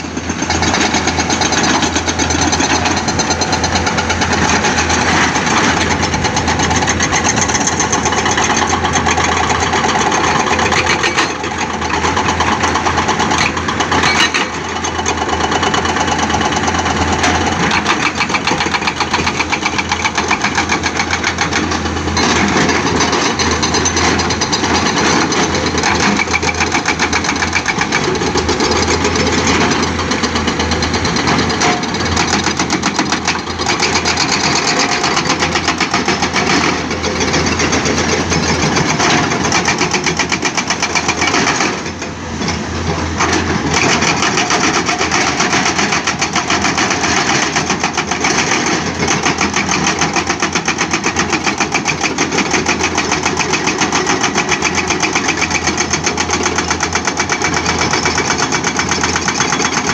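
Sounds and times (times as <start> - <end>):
diesel engines running: 0.0 - 59.9
hydraulic rock breakers pounding: 0.0 - 59.9.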